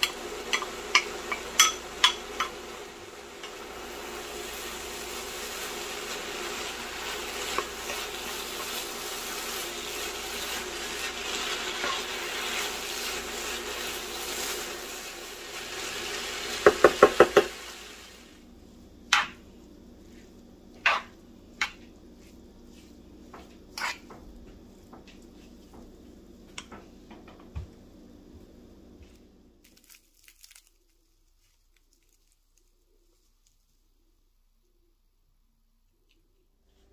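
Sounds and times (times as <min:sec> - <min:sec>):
food sizzling in frying pan: 0:00.0 - 0:27.0
wooden spatula stirring: 0:05.4 - 0:14.6, 0:19.1 - 0:26.2.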